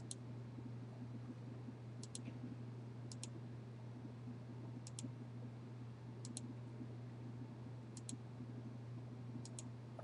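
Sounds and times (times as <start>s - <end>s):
computer mouse clicking: 0.0s - 0.2s, 2.0s - 2.4s, 3.1s - 3.4s, 4.8s - 5.1s, 6.2s - 6.5s, 8.0s - 8.2s, 9.4s - 9.7s
low hum: 0.0s - 10.0s.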